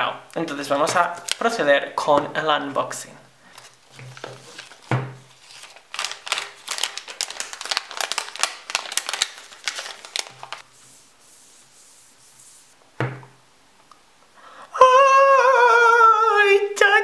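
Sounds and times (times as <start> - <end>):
plastic wrapping crinkling: 1.0 - 1.6, 3.5 - 10.7
soft thump: 13.0 - 13.4.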